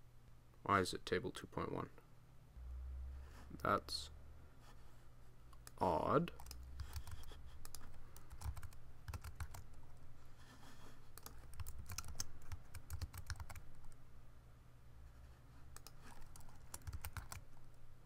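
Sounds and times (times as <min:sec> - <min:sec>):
computer keyboard typing: 0:05.6 - 0:09.8, 0:11.1 - 0:14.0, 0:15.7 - 0:17.6.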